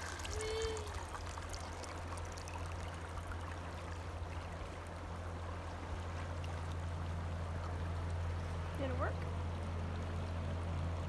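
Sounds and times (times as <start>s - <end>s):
water pouring from bucket: 0.0s - 3.7s
river rushing: 0.0s - 6.2s.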